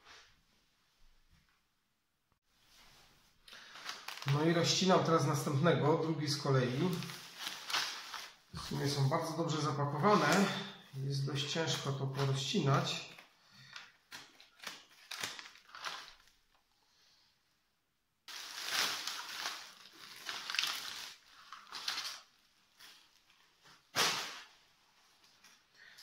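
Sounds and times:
plastic and newspaper crinkling: 3.4s - 16.6s, 18.3s - 24.5s.

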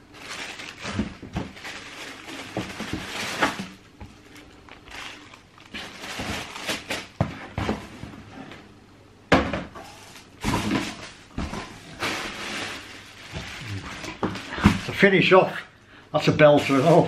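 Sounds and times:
cardboard boxes rustling and scraping: 5.1s - 8.6s.

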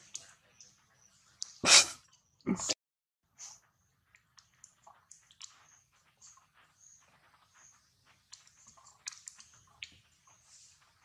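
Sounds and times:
monkey chewing fruit: 4.1s - 11.0s.

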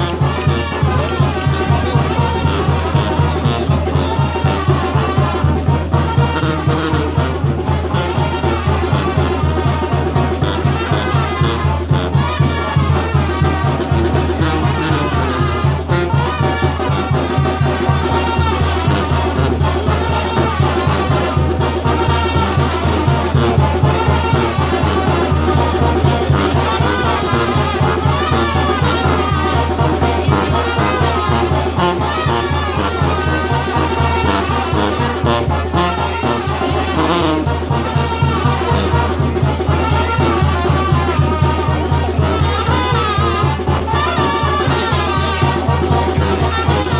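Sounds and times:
brass band dance music: 0.0s - 46.9s.

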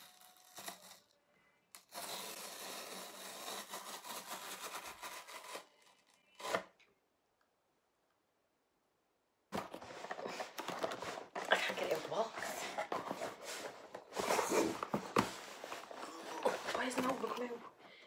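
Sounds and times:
cardboard ripping: 1.9s - 6.7s, 9.6s - 17.5s.

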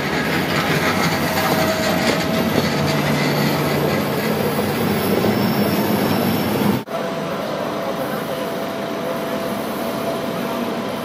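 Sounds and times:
train wheels rumbling on rail: 0.0s - 6.9s.

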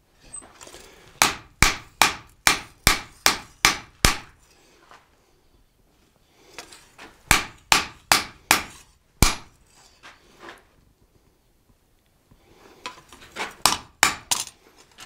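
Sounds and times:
hammer striking hot steel on anvil: 1.2s - 4.4s, 7.3s - 9.5s, 13.7s - 14.4s.

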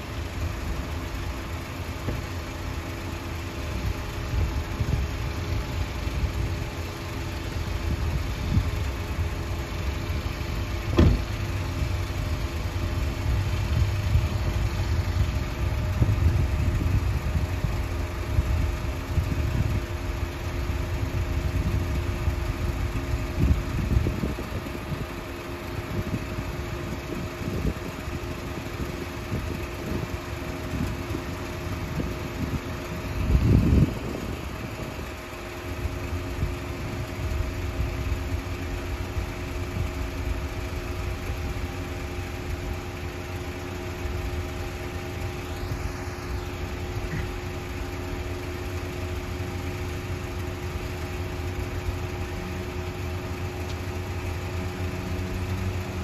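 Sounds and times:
distant ship engines droning: 0.0s - 56.0s
wind buffeting microphone: 25.8s - 35.1s.

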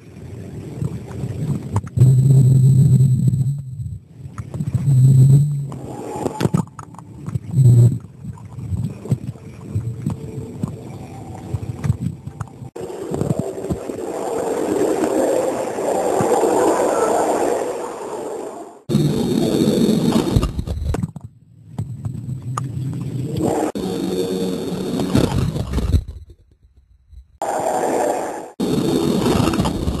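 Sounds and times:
low hum: 0.0s - 30.0s
underwater knocks and gurgles: 0.2s - 14.1s
water lapping at camera: 5.7s - 18.6s.

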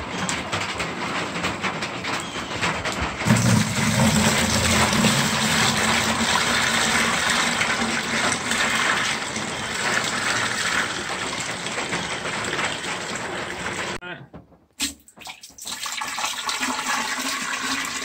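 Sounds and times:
water pouring into bucket: 3.2s - 14.0s, 14.8s - 18.0s.

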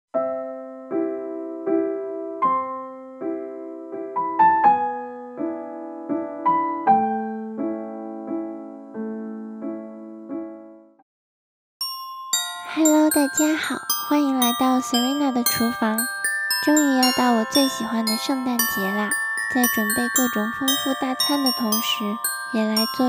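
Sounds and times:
soft piano chords: 0.2s - 10.9s.

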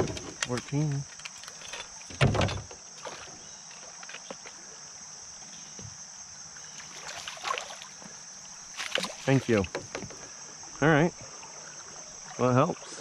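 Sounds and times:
high insect buzz: 0.0s - 13.0s
fish splashing at surface: 6.8s - 8.1s, 8.7s - 9.7s.

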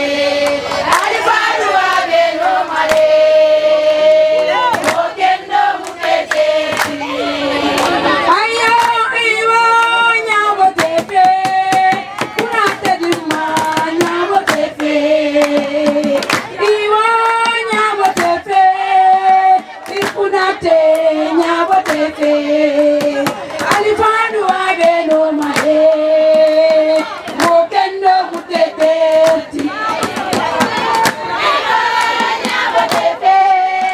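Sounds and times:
women singing together: 0.0s - 33.9s
sharp hand claps: 2.8s - 3.1s, 4.7s - 5.1s, 5.8s - 7.0s, 8.7s - 9.0s, 10.8s - 14.8s, 15.4s - 16.6s, 19.8s - 20.3s, 21.8s - 22.2s, 24.8s - 27.7s, 31.9s - 33.9s.

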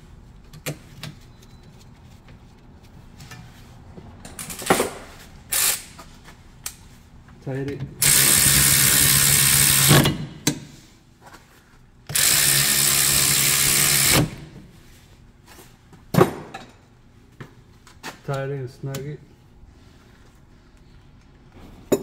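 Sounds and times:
cordless electric ratchet running: 5.5s - 5.8s, 8.0s - 10.2s, 12.1s - 14.5s.

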